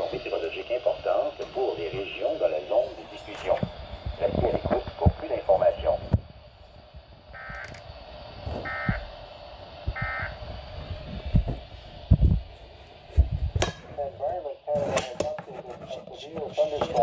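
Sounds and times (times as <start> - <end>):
static hiss: 0.0 - 17.0
warbling digital data bursts: 7.2 - 10.5.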